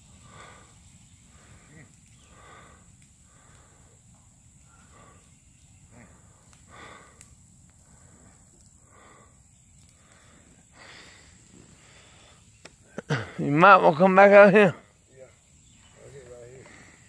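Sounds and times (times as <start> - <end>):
person breathing: 0.2 - 4.0, 4.7 - 13.4, 16.6 - 17.0.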